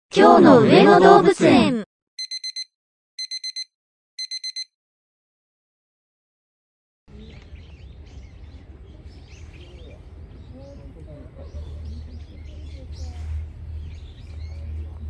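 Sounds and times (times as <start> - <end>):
electronic alarm beeping: 2.2 - 4.7.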